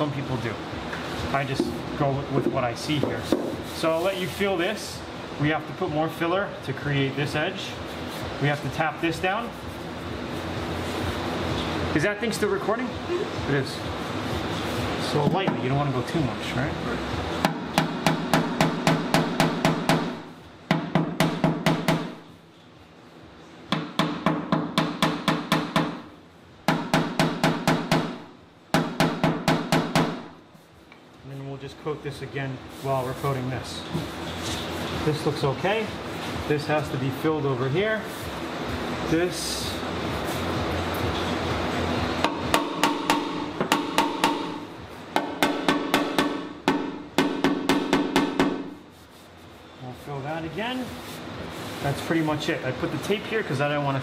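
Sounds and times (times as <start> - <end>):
hammer tapping sheet metal: 17.4 - 22.2, 23.7 - 30.3, 42.2 - 48.8
hammer tapping steel: 42.2 - 48.7.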